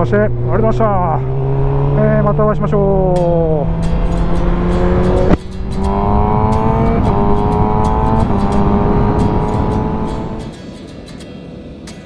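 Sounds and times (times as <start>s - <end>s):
motorcycle engine revving through gears: 0.0s - 10.6s
sharp crack: 3.1s - 12.0s.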